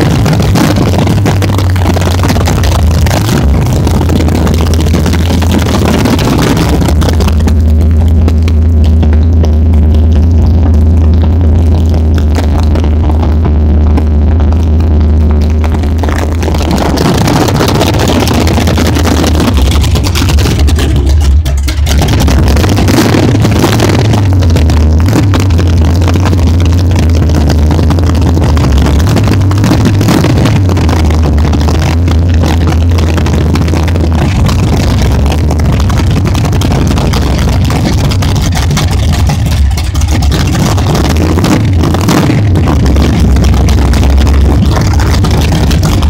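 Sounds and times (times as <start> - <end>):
loud drag car engine rumble: 0.0 - 46.0.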